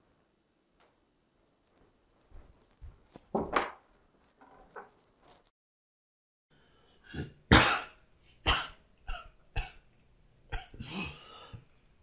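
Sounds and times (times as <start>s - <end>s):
man coughing: 7.1s - 9.8s, 10.5s - 11.3s
rough breath: 10.8s - 11.8s.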